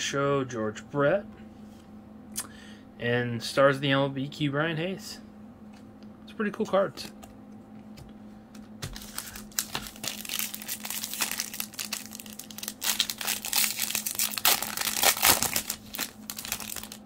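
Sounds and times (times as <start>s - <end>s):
plastic wrapper crinkling and tearing: 8.8s - 17.0s.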